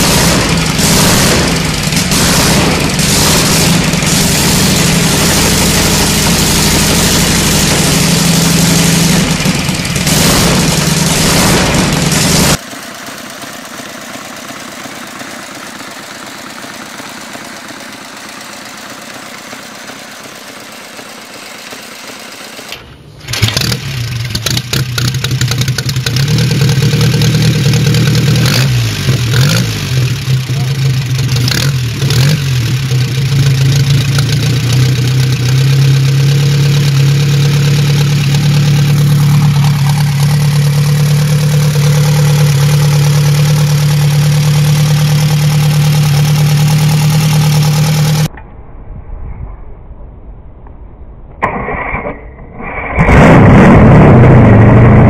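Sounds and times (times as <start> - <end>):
loud motorcycle engine idling: 0.0 - 48.3
motorcycle engine running quietly: 30.0 - 48.3.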